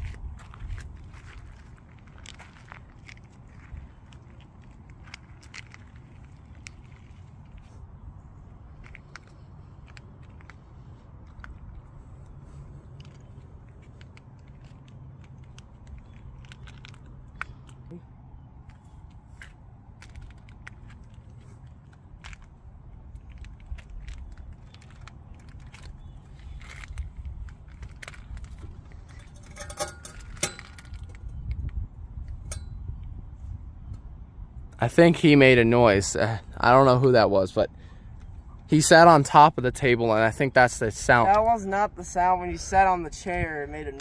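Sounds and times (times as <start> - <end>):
footsteps crunching on wood chips: 0.0 - 7.9
wind rumble on microphone: 0.0 - 17.9, 20.1 - 36.7, 40.9 - 44.0
metallic clink: 29.1 - 31.2.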